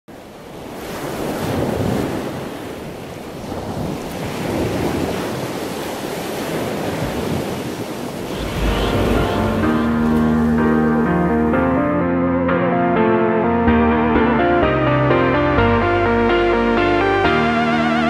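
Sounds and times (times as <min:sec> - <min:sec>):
waves washing in: 0:00.2 - 0:12.0.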